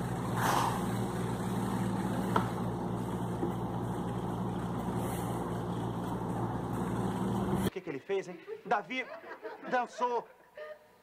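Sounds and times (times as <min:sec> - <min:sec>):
low hum with hiss: 0:00.0 - 0:08.2.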